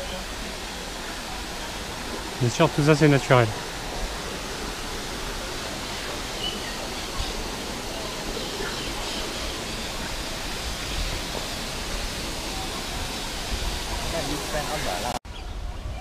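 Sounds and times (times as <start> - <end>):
waterfall rushing: 0.0 - 15.2
faint bird chirps: 5.8 - 7.4.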